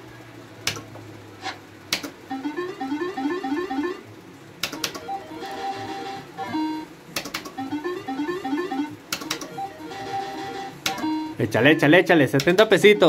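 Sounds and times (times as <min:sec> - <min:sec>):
sharp click: 0:00.6 - 0:00.9, 0:01.9 - 0:02.2, 0:04.6 - 0:05.0, 0:07.2 - 0:07.6
slot machine beeping jingle: 0:02.3 - 0:04.0, 0:05.0 - 0:06.9, 0:07.6 - 0:11.9, 0:12.8 - 0:13.0.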